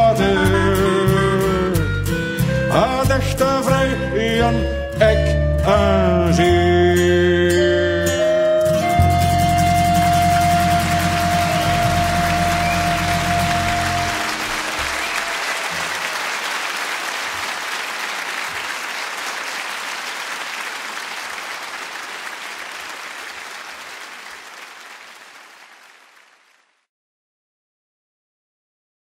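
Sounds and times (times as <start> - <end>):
music held notes: 0.0 - 16.0
audience applauding: 10.0 - 26.9.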